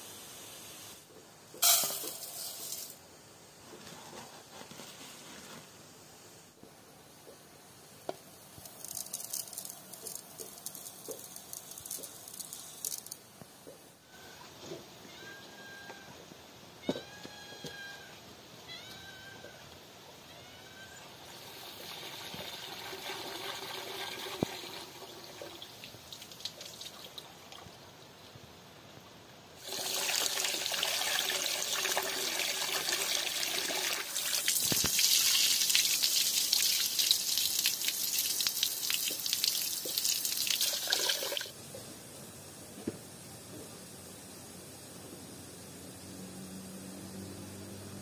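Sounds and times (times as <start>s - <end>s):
cat meowing: 15.0s - 16.2s, 16.8s - 19.6s, 20.2s - 21.0s.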